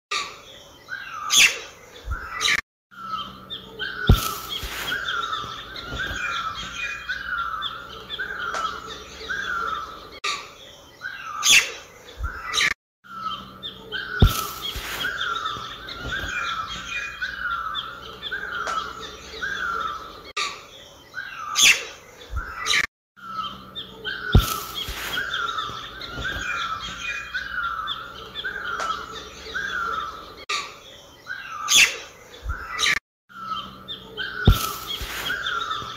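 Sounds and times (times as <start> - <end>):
birds chirping: 0.1 - 35.9.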